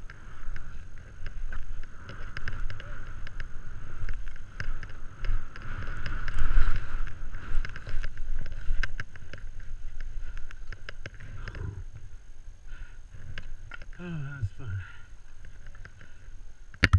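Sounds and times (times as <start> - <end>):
wind rumbling on microphone: 0.0 - 16.9
skis swishing through powder snow: 2.8 - 10.7.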